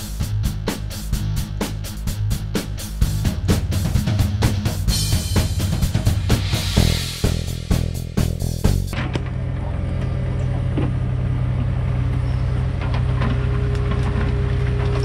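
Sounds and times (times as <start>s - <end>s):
music: 0.0s - 9.0s
heavy equipment diesel engines: 0.0s - 15.0s.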